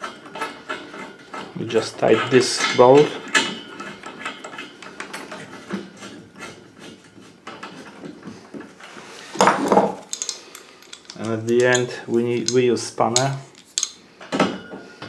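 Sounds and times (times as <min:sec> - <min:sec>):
metal scrape: 0:00.0 - 0:14.0
small metal clicks and taps: 0:10.0 - 0:14.0.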